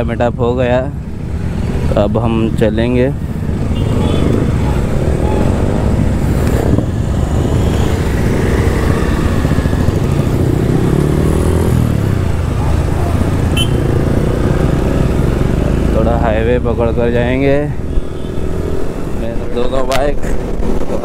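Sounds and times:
road and wind noise: 0:00.0 - 0:21.0
motorcycle engine accelerating: 0:03.5 - 0:16.7.

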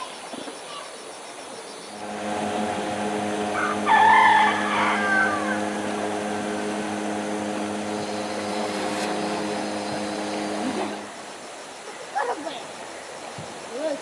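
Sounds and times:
small engine humming: 0:01.9 - 0:11.5.

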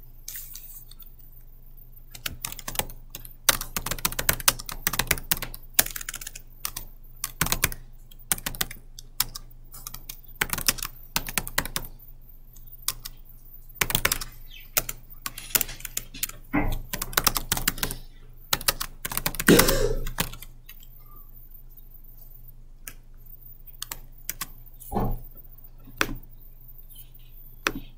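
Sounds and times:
typing on a computer keyboard: 0:02.1 - 0:13.2, 0:13.8 - 0:21.0, 0:23.7 - 0:24.6.

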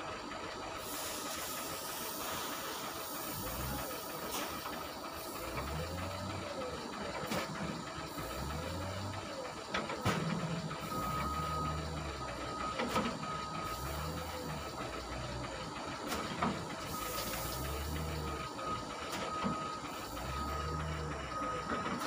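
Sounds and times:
wheel loader diesel engine: 0:00.0 - 0:22.0.

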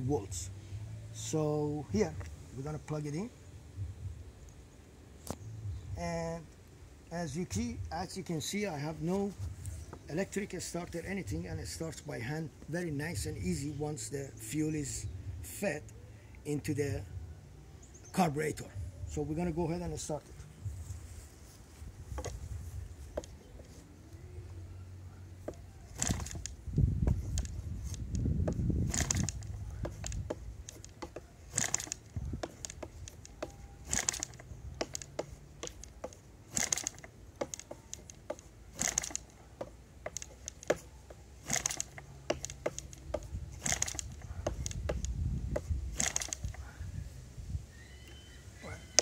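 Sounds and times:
model engine propeller flips: 0:25.4 - 0:46.6.

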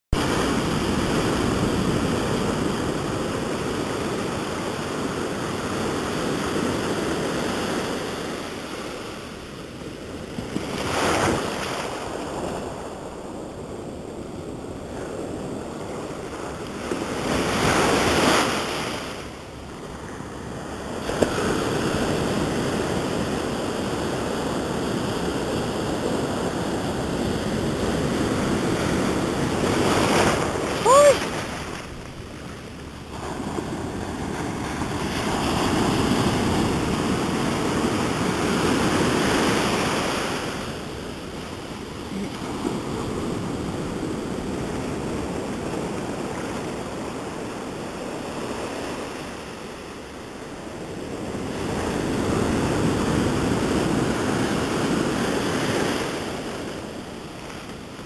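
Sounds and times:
waves crashing: 0:00.2 - 0:13.8, 0:14.8 - 0:58.0
ocean surf washing over sand: 0:00.2 - 0:58.0.

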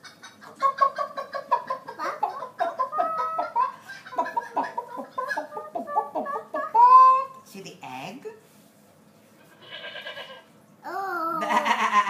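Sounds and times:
toddler imitating chicken clucks: 0:10.8 - 0:12.0.

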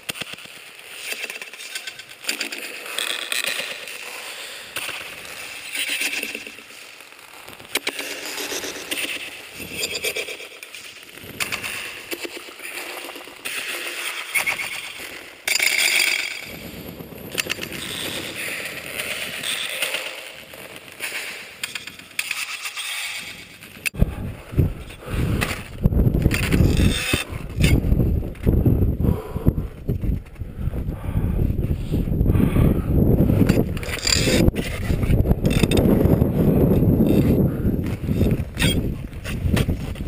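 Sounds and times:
wind buffeting microphone: 0:16.4 - 0:19.6, 0:24.0 - 0:40.0.

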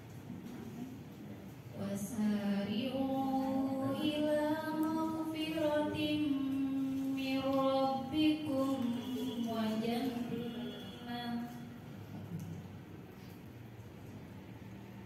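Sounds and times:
woman chanting melodically: 0:01.8 - 0:11.8.

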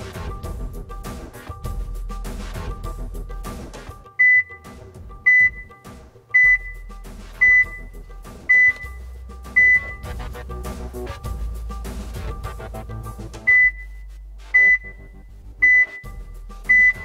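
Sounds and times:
background music: 0:00.0 - 0:17.0
short high beeps: 0:04.2 - 0:04.6, 0:05.3 - 0:05.8, 0:06.4 - 0:06.8, 0:08.5 - 0:09.0, 0:09.6 - 0:10.0, 0:13.5 - 0:14.0, 0:14.6 - 0:15.0, 0:15.6 - 0:16.1, 0:16.7 - 0:17.0.

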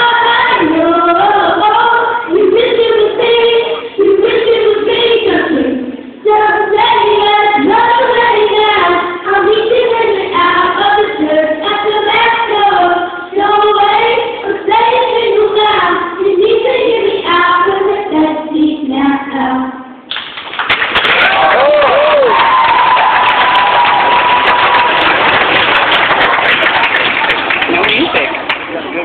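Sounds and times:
children singing together: 0:00.0 - 0:19.7.

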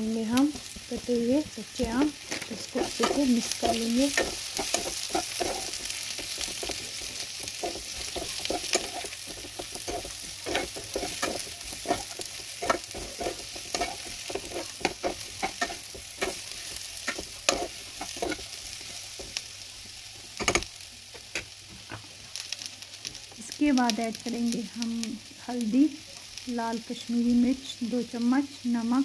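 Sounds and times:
food sizzling in oil: 0:00.0 - 0:29.0
metal spoon scraping a pan: 0:01.8 - 0:19.4.

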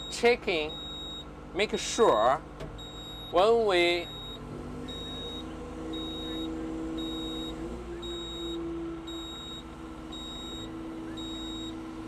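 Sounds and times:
electronic warning beeper: 0:00.0 - 0:01.2, 0:02.8 - 0:03.4, 0:04.0 - 0:11.8
excavator engine and hydraulics: 0:00.0 - 0:12.0.

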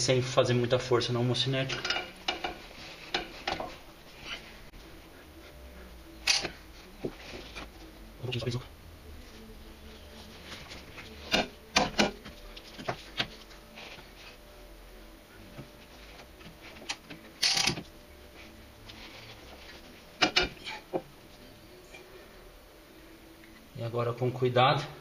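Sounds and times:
metal parts knocking and clicking: 0:16.9 - 0:17.8.

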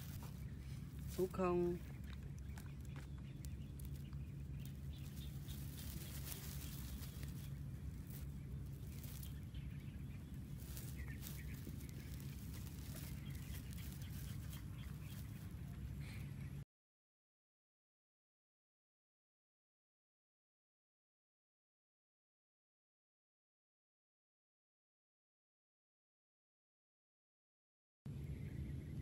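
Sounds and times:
steady low hum: 0:00.0 - 0:16.6, 0:28.1 - 0:29.0.

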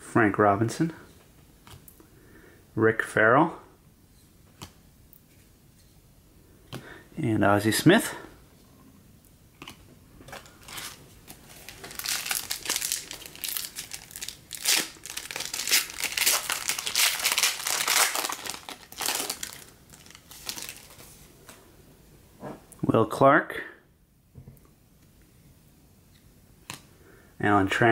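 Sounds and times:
plastic wrapper crinkling and tearing: 0:10.3 - 0:21.2.

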